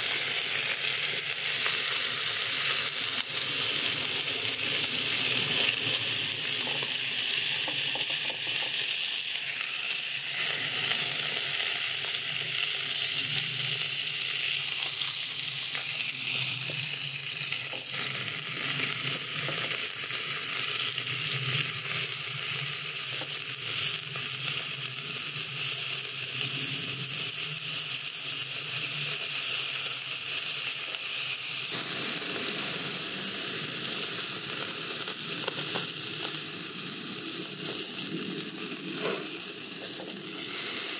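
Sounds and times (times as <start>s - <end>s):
pork sizzling on a griddle: 0.0s - 40.9s.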